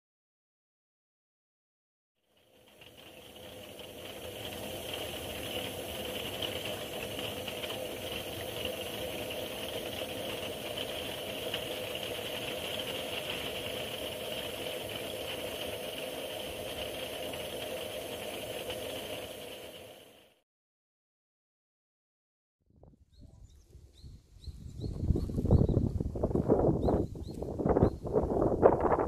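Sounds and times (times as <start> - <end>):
lantern hissing: 2.4 - 20.4.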